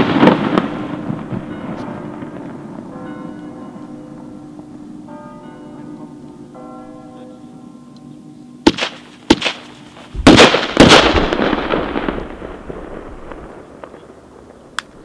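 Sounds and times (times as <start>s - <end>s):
firework cracks: 0.0s - 2.6s, 8.7s - 15.0s
loud firework blasts with echo: 0.0s - 2.9s, 8.7s - 15.0s.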